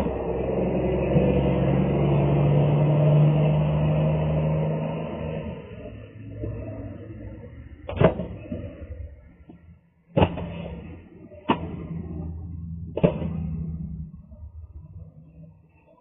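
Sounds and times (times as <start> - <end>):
sharp knocks: 10.1 - 10.8.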